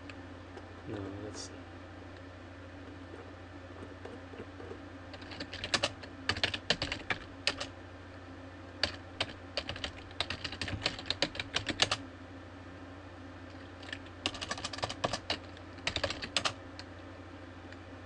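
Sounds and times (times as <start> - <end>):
keyboard typing: 3.8 - 7.7, 8.8 - 12.0, 13.6 - 16.6.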